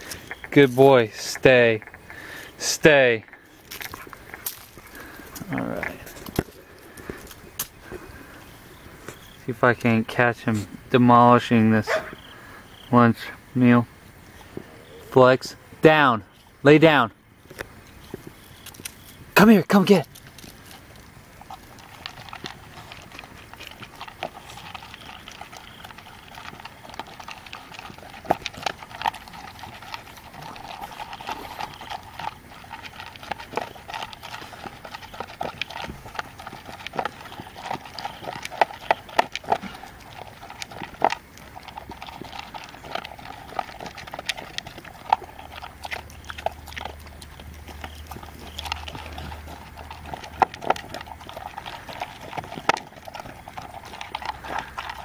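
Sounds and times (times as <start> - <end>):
dog crunching dry kibble: 0.0 - 12.5, 17.4 - 55.0
kibble clicking against bowl: 21.4 - 55.0.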